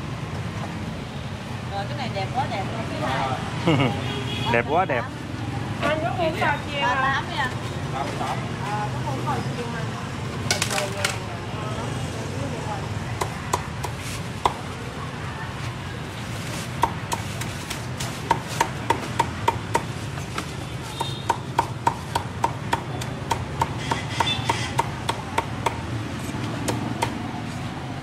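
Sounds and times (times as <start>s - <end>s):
cleaver chopping on board: 16.8s - 25.8s, 26.6s - 27.2s.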